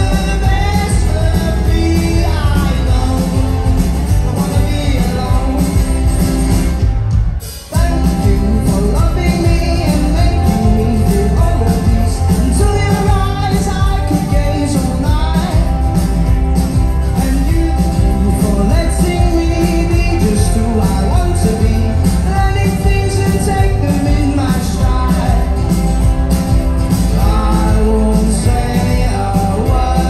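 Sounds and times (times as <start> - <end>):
lead vocal singing: 0.0 - 6.8, 7.5 - 15.8, 17.1 - 25.7, 27.0 - 30.0
rock band playing live: 0.0 - 30.0.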